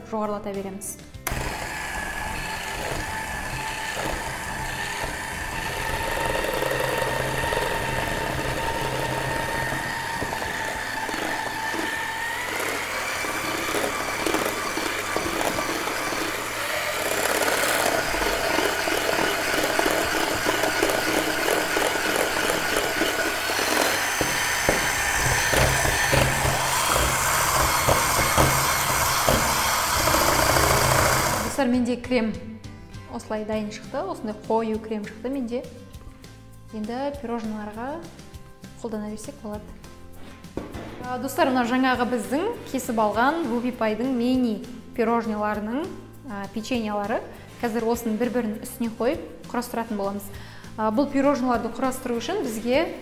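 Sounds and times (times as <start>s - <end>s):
electric hand mixer whining: 1.2s - 31.6s.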